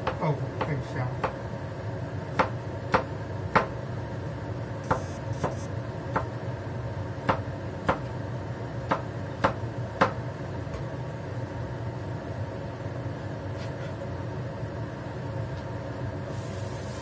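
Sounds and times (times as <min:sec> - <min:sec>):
cleaver chopping on cutting board: 0:02.3 - 0:03.7, 0:04.9 - 0:06.3.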